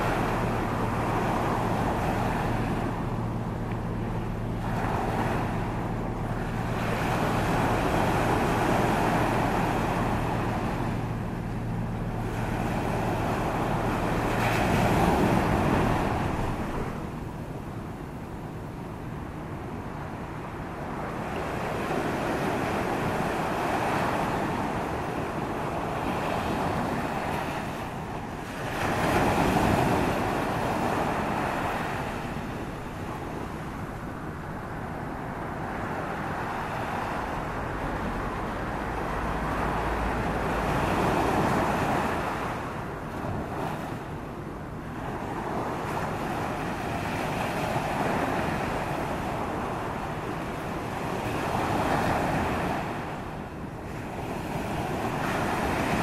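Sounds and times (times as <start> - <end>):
surf washing onto beach: 0.0 - 11.4, 12.0 - 17.6, 20.9 - 56.0
wind rumbling on microphone: 0.0 - 56.0.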